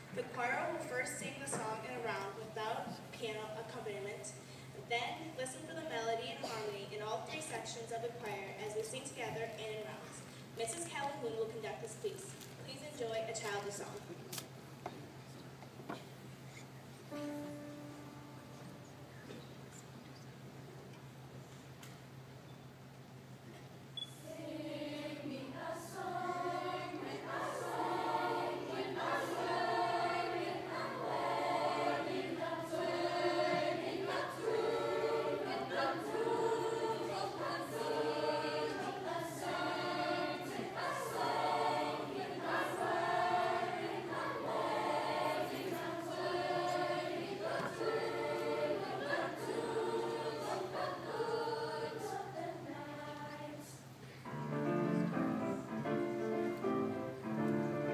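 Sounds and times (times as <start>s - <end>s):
steady low hum: 13.8s - 57.9s
choir singing unaccompanied: 24.2s - 57.9s.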